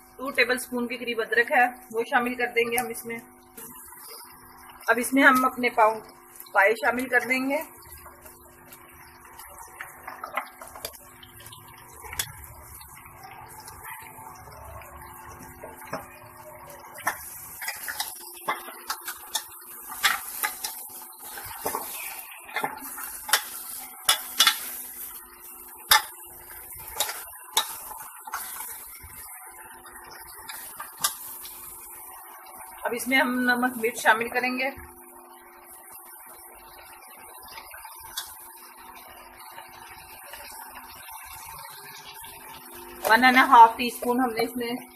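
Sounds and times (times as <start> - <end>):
faint sizzle: 0.0 - 44.9
ladle knocking and scraping metal pot: 22.5 - 24.8.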